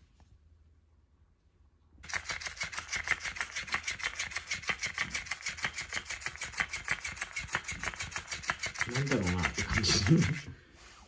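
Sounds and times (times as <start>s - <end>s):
toy motor rapid clicking: 2.0s - 10.5s.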